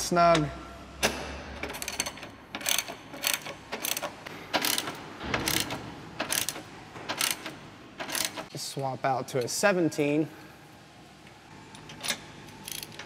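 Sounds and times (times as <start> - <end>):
hand ratchet clicking: 1.6 - 8.4, 12.6 - 13.0.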